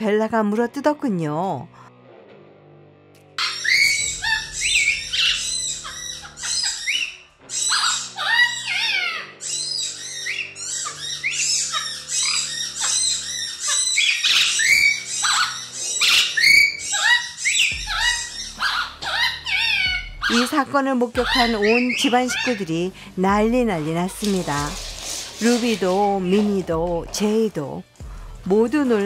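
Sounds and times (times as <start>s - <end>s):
parrot squawking harshly: 3.4s - 20.6s, 21.2s - 22.7s, 24.3s - 26.5s.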